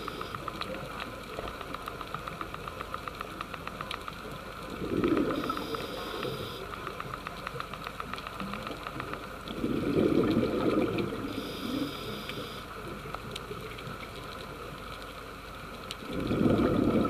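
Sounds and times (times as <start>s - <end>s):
faint clicks: 0.0s - 17.0s
steady underwater hiss: 0.0s - 17.0s
bubbles gurgling underwater: 4.7s - 6.5s, 9.5s - 11.4s, 16.0s - 17.0s.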